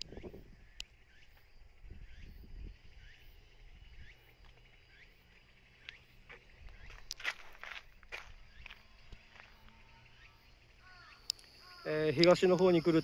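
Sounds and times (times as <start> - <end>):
faint high-pitched drone: 0.0 - 13.0.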